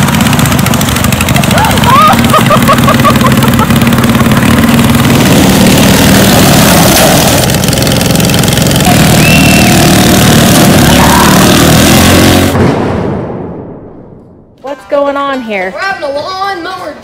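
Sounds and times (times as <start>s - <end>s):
riding lawn mower engines: 0.0s - 12.6s.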